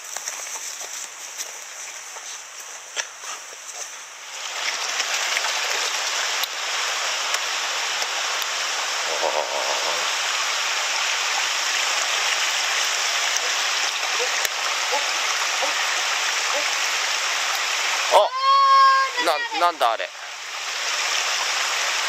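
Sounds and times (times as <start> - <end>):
footsteps on stones: 0.0 - 4.0
rocky stream rushing: 0.0 - 22.0.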